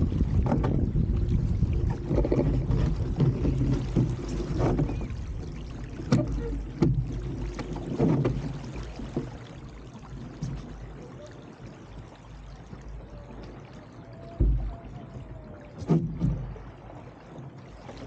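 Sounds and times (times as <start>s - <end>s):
water slapping against boat hull: 0.0s - 18.0s
wind rumbling on microphone: 0.0s - 18.0s.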